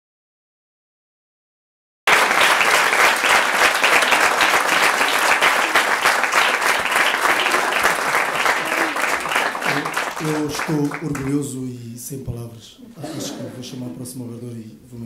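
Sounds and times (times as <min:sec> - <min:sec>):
crowd applauding: 0:02.1 - 0:11.6.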